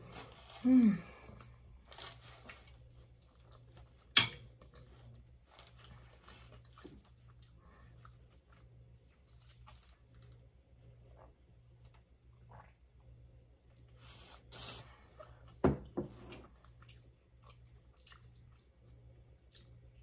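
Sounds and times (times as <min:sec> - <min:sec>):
person chewing food: 0:01.3 - 0:13.0, 0:16.4 - 0:20.0.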